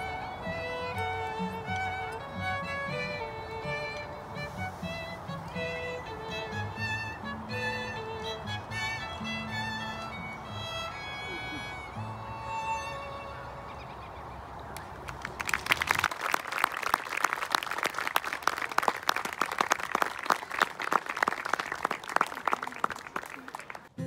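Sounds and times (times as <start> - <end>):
violin note: 0.0 - 13.8
audience applauding: 14.8 - 24.0.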